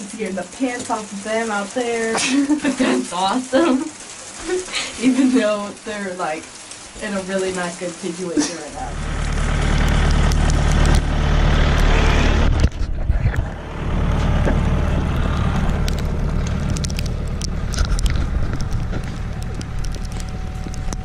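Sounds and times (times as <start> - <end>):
wind buffeting microphone: 9.4 - 21.0.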